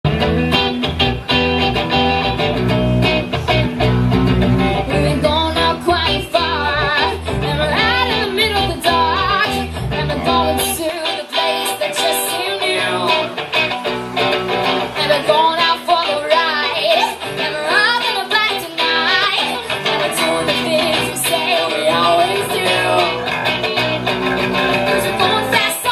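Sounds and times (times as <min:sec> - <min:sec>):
electric guitars playing: 0:00.0 - 0:25.9
woman singing: 0:04.7 - 0:13.7, 0:14.8 - 0:25.9.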